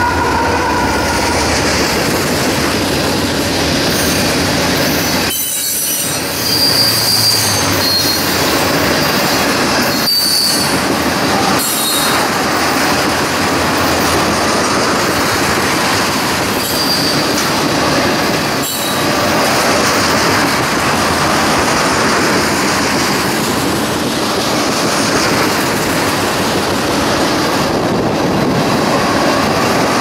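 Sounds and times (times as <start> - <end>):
freight train rumbling on rails: 0.0 - 30.0
high wheel squeals: 4.9 - 12.3, 16.6 - 17.4.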